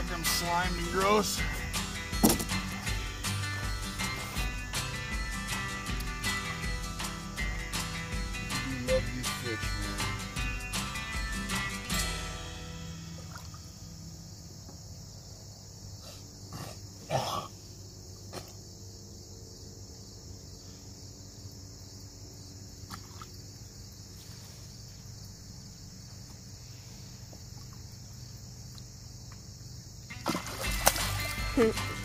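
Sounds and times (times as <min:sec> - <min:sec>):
water splashed by hands: 0:30.1 - 0:32.0.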